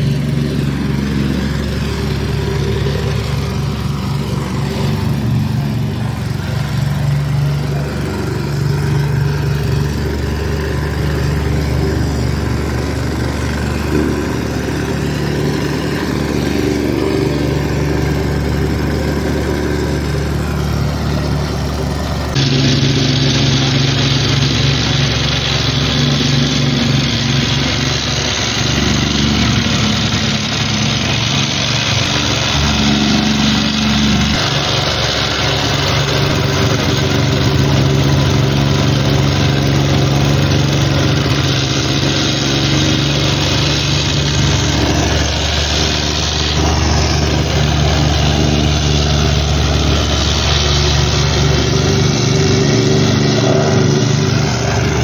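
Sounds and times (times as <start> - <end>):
plate compactor running: 0.0 - 55.0.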